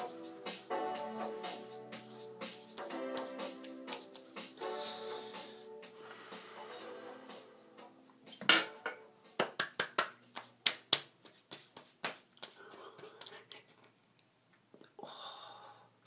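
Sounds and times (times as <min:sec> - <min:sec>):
hands slapping skin: 0:09.4 - 0:13.6.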